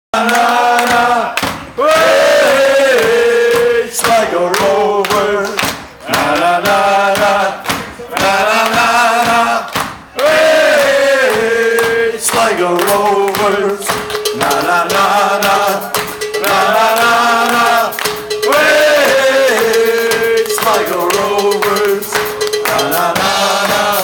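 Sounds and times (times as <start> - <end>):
voices singing a chant: 0.2 - 24.0
live rock band with drums: 11.3 - 24.0.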